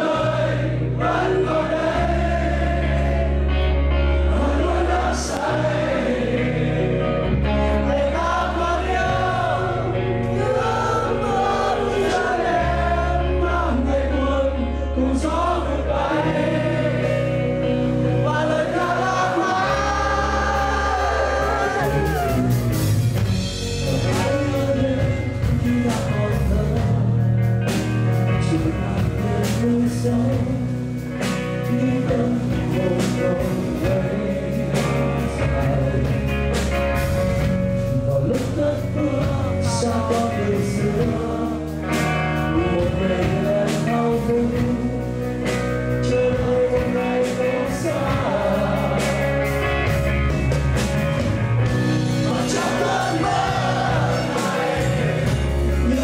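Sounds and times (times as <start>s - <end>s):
live rock band playing: 0.0s - 56.0s
person singing: 18.0s - 22.8s, 23.5s - 36.5s, 37.8s - 49.6s.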